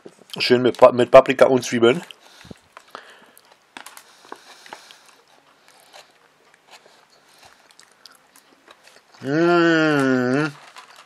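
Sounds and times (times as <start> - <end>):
quiet chewing: 2.0 - 9.4.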